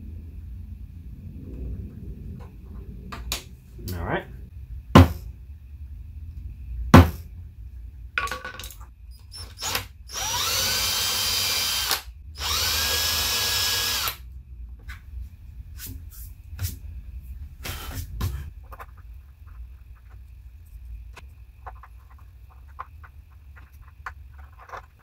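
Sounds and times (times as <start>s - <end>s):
cordless drill boring into wood: 9.3s - 14.2s.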